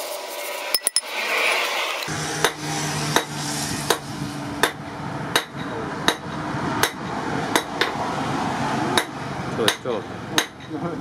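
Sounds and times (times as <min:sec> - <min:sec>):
hammer striking metal: 0:00.8 - 0:01.2, 0:09.7 - 0:10.8.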